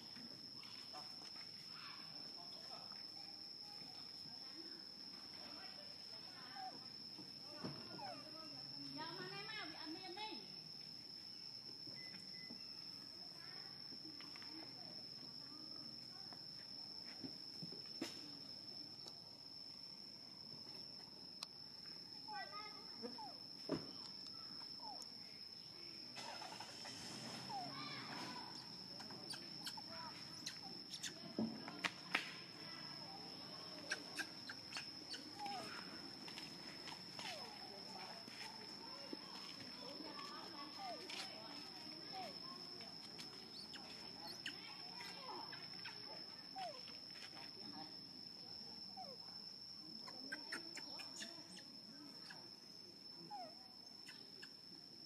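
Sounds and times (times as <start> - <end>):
high-pitched insect drone: 17.0 - 54.6.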